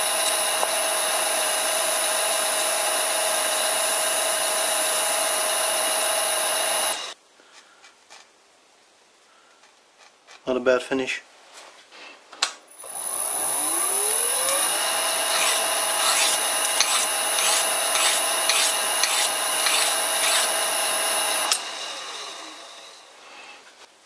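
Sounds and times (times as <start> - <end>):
lathe motor whining: 0.0 - 7.2, 12.7 - 23.2
abrasive rubbing spinning workpiece: 15.2 - 20.6.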